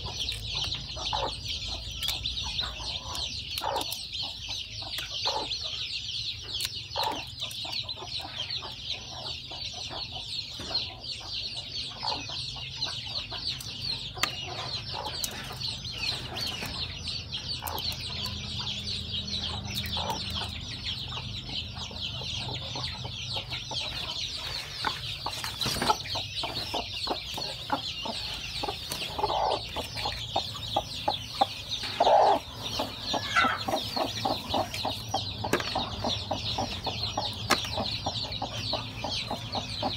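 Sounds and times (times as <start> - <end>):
chicks peeping: 0.0 - 39.9
hen clucking: 0.0 - 39.9.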